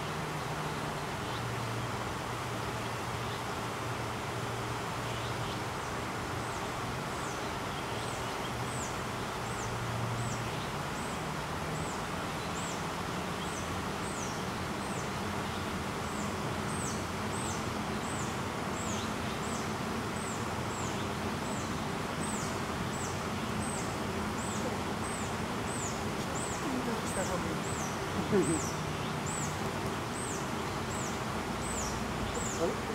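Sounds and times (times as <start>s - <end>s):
outdoor background hiss: 0.0s - 32.9s
small bird calling: 13.4s - 32.9s.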